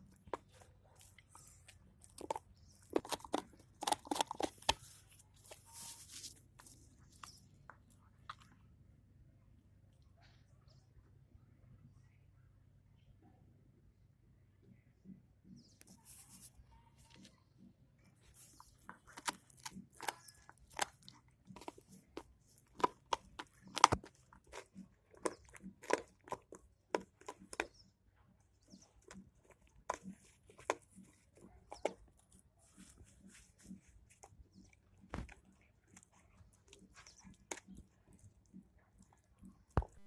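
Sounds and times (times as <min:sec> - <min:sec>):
puppy gnawing chew bone: 0:00.0 - 0:08.6, 0:18.2 - 0:27.8, 0:28.5 - 0:40.0.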